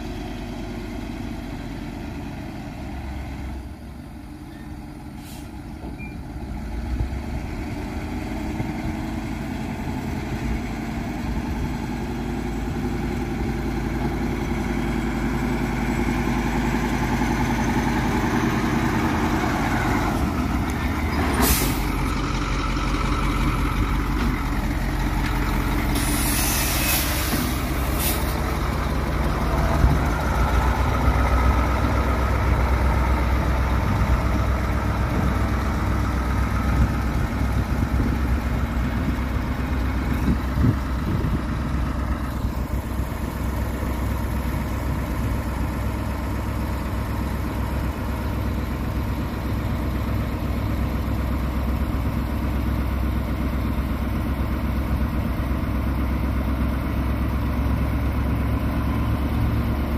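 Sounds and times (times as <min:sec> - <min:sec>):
diesel truck engine running: 0:00.0 - 0:59.9
air brake hisses: 0:05.1 - 0:05.7, 0:21.3 - 0:21.9, 0:25.9 - 0:28.4.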